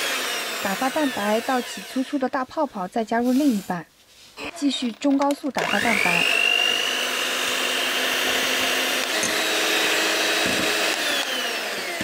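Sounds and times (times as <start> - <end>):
electric hand mixer running: 0.0 - 2.3, 5.6 - 12.0.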